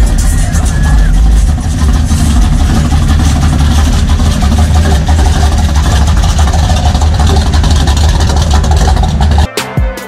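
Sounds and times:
truck engine rumbling past: 0.0 - 9.5.

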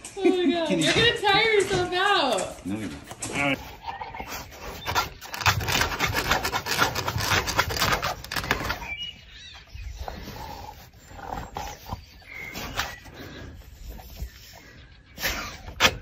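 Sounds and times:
dog claws scratching fabric: 4.2 - 9.0.

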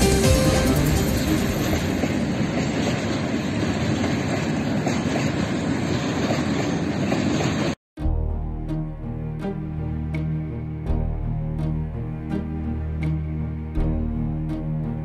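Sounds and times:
music: 0.0 - 2.1, 8.0 - 15.0
freight train wheels rattling on rails: 0.0 - 7.8.

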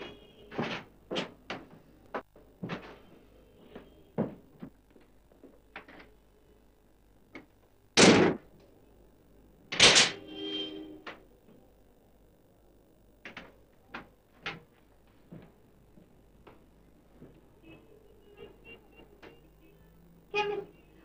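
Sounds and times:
loud bangs: 8.0 - 8.4.

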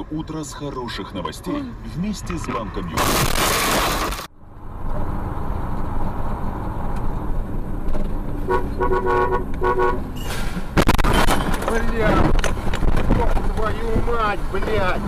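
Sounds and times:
car driving rumble: 0.0 - 15.0
car horn short toots: 8.5 - 10.1.

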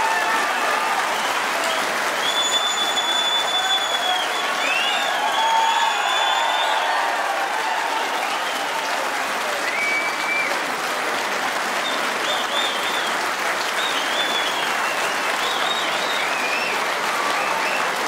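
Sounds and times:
crowd applauding: 0.0 - 18.0
whistles: 1.1 - 7.2, 9.6 - 10.6, 11.8 - 18.0.

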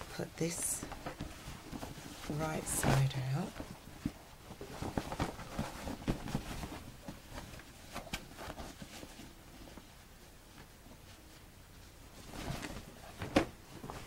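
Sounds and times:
fabric bag rustling: 0.0 - 10.1.

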